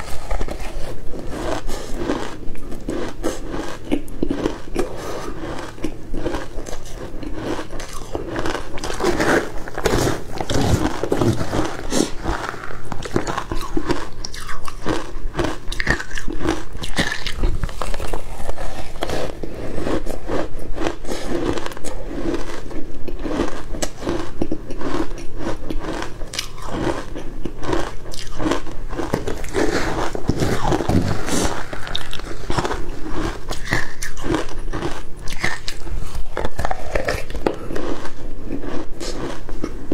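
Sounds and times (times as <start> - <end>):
ice crunching while chewed: 0.0 - 39.9.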